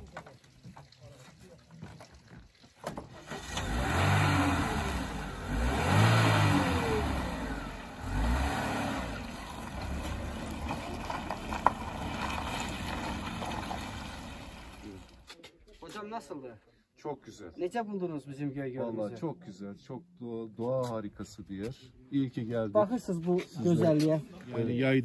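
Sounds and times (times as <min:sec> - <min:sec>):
road noise: 0:02.9 - 0:15.4
car engine accelerating: 0:03.1 - 0:15.2.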